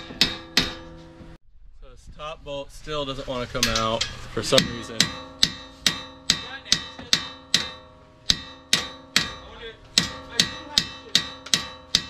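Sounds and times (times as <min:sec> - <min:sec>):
hammer striking steel bolt: 0:00.0 - 0:01.1, 0:03.6 - 0:12.0.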